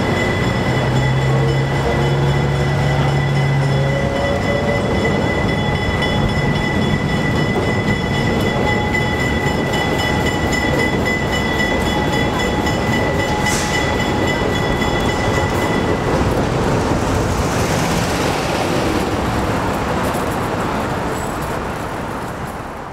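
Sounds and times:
high squeal from train: 0.0 - 16.4
diesel locomotive rumbling past: 0.0 - 22.9.

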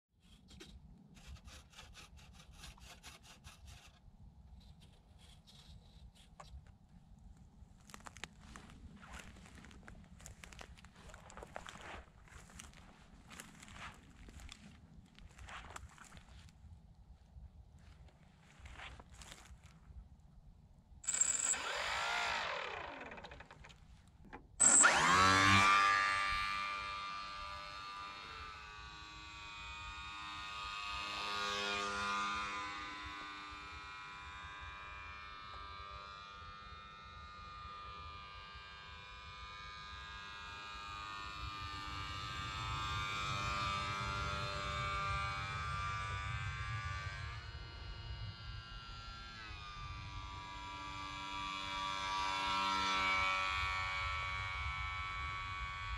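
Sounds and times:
electric motor buzzing whine: 21.1 - 55.9.

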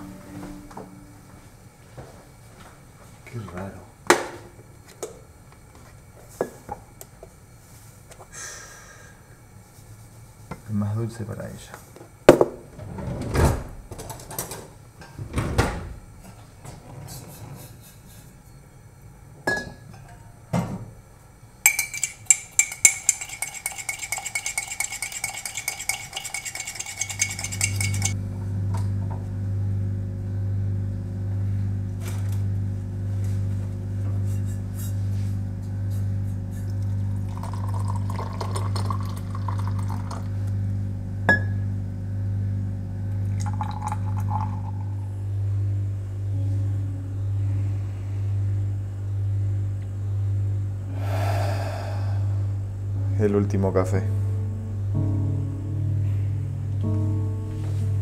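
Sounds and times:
spoon and cups clinking: 21.7 - 28.2
spoon stirring in a cup: 21.7 - 28.2
low pulsing hum: 22.6 - 58.0.

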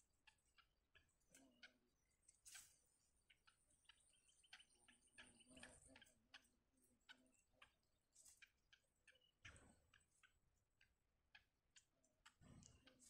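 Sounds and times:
faint ticks and clicks: 0.0 - 13.0.

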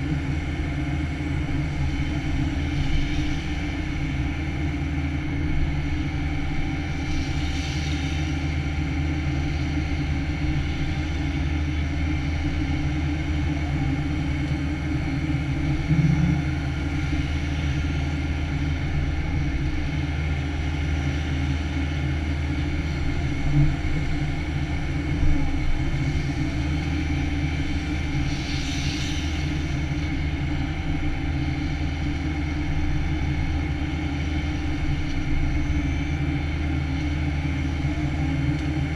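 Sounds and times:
excavator diesel engine running: 7.8 - 38.9
low thumps: 15.8 - 16.7.

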